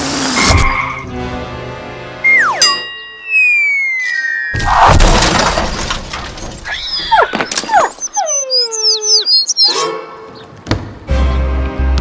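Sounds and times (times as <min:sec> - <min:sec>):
falling whistle slides: 0:02.2 - 0:02.7, 0:03.3 - 0:04.4
falling tone: 0:02.2 - 0:05.3
cartoon bird chirps: 0:03.3 - 0:04.3, 0:06.7 - 0:09.8
cartoon crash smash: 0:04.6 - 0:06.7.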